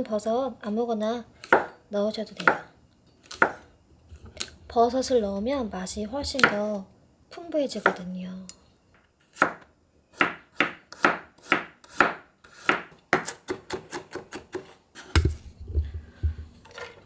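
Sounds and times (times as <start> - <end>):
knife chopping on wooden board: 1.4 - 1.7, 3.3 - 3.6, 9.4 - 15.4.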